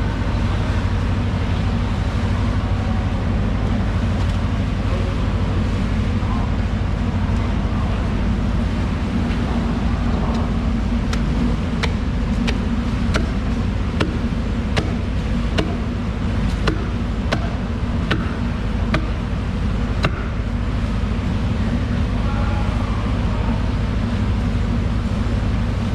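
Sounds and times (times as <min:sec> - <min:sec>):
low rumble: 0:00.0 - 0:25.9.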